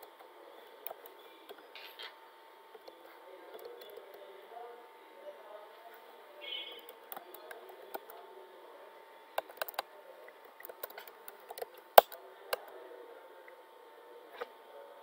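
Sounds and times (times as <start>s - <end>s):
faint background hum: 0.0s - 15.0s
keyboard typing: 6.8s - 8.2s, 9.4s - 12.8s.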